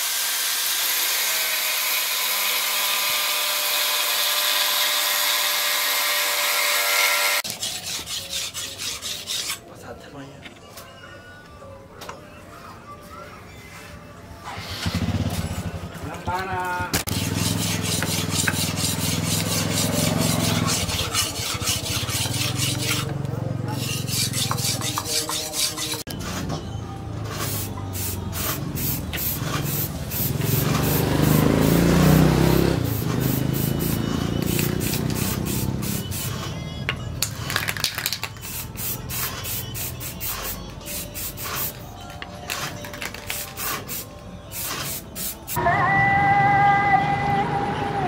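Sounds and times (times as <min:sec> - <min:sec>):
blade sharpening on whetstone: 0:07.4 - 0:09.6, 0:17.1 - 0:23.1, 0:23.7 - 0:26.0
aerosol spray can hissing: 0:32.9 - 0:36.3, 0:43.3 - 0:45.6.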